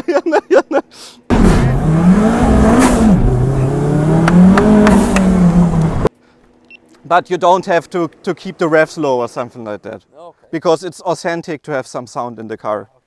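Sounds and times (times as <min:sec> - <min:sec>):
car engine accelerating hard: 0:01.3 - 0:06.1.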